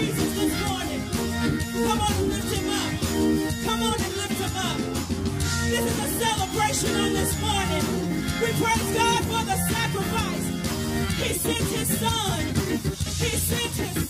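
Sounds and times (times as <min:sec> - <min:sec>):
church band with organ: 0:00.0 - 0:14.0
woman singing into microphone: 0:11.2 - 0:12.5, 0:13.2 - 0:14.0.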